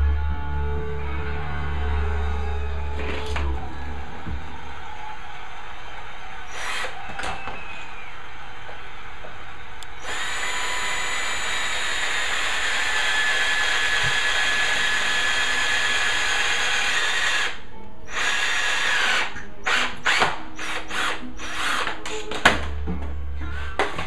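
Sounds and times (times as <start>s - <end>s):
electric drill whining: 6.4s - 22.5s.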